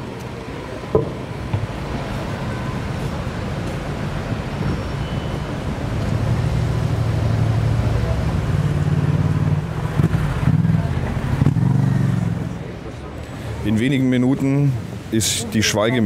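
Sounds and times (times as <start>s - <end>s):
street traffic: 0.0s - 16.0s
vehicle engine running close by: 6.0s - 13.0s.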